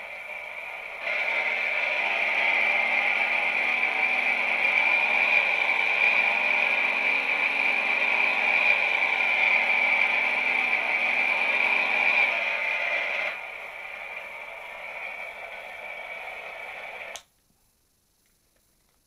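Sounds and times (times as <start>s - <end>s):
smoker high-pitched rushing: 0.0s - 17.2s.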